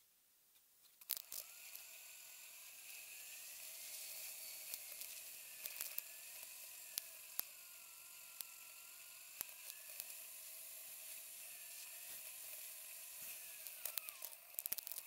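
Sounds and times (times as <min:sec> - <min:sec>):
faint wavering whine: 0:01.1 - 0:15.0
bicycle tyres hissing on pavement: 0:07.8 - 0:15.0.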